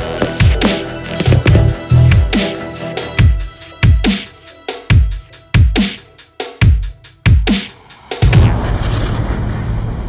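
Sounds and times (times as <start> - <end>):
deep sliding bass notes: 8.2 - 10.0.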